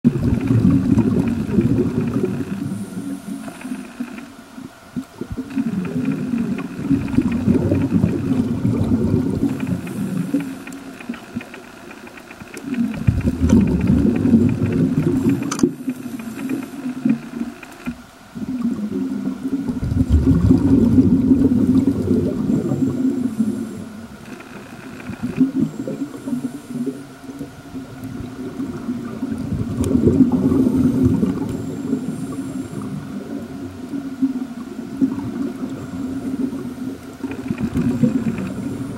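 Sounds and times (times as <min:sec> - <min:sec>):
exhaled bubbles gurgling underwater: 0:00.0 - 0:38.9
regulator hiss: 0:00.1 - 0:18.7, 0:21.4 - 0:27.9, 0:30.1 - 0:33.7.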